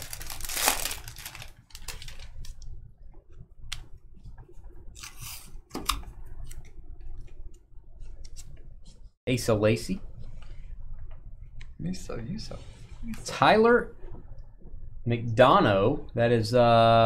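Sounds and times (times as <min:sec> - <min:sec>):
foil wrapper crinkling: 0:00.0 - 0:02.6.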